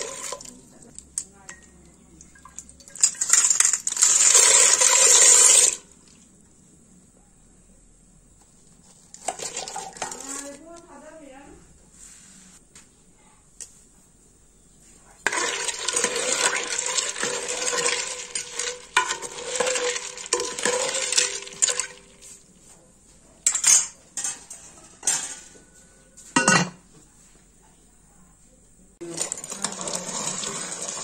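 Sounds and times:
spoon scraping metal pot: 9.2s - 10.6s, 15.3s - 22.3s, 29.1s - 31.0s.

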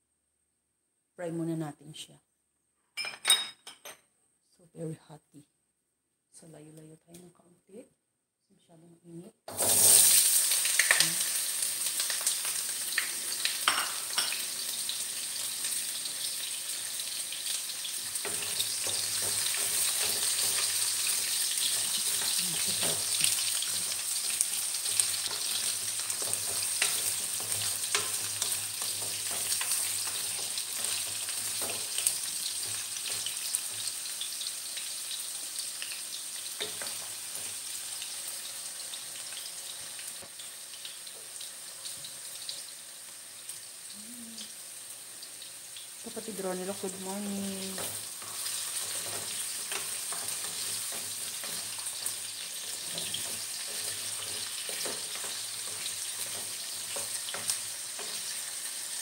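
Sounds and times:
vegetables sizzling in hot oil: 9.5s - 59.0s
wooden spatula tapping and scraping: 18.1s - 34.1s, 36.6s - 37.6s, 47.6s - 58.5s.

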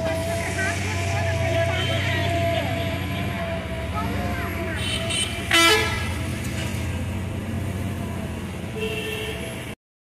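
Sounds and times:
road traffic rumble: 0.0s - 9.8s
loud pitched horn blast: 4.7s - 6.3s.

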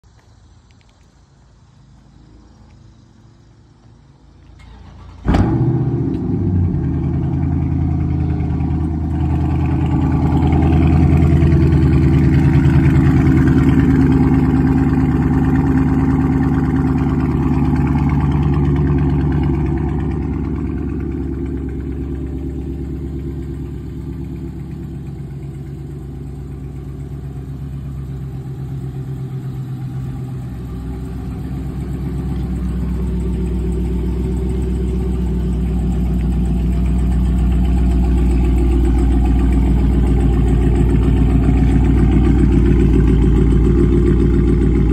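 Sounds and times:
car engine idling: 0.0s - 44.9s.

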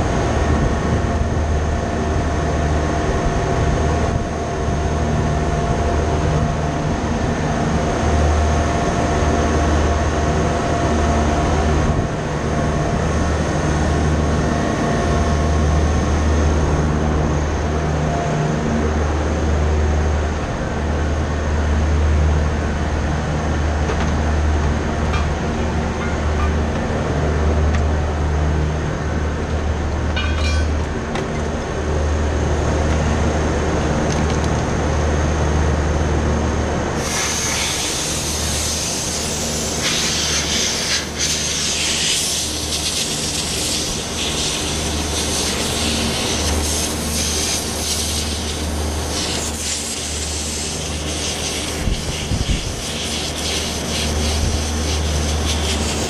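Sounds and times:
machinery drone: 0.0s - 56.0s
loud hiss: 37.0s - 56.0s.

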